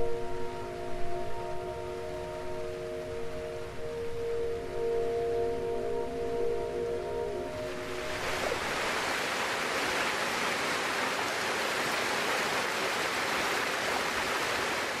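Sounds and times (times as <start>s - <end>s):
steady rushing hiss: 0.0s - 15.0s.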